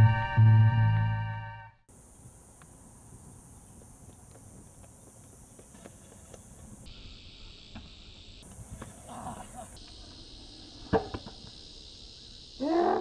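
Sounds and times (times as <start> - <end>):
higher-pitched buzz: 0.0 - 1.8
music: 0.0 - 1.8
steady hiss: 1.9 - 12.6.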